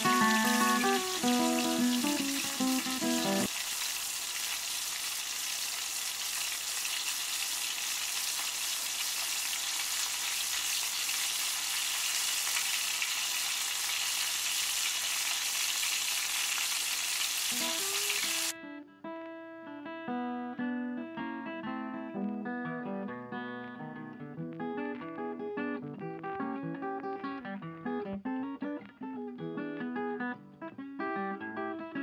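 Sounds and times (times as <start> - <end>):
guitar music: 0.0 - 3.5, 17.5 - 32.0
fish sizzling in oil: 0.0 - 18.5.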